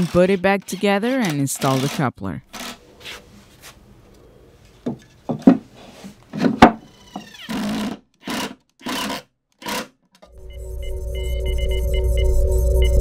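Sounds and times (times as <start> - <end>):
cordless drill driving screws: 0.0 - 2.8
plastic and wood knocking: 4.8 - 5.6, 6.3 - 6.8.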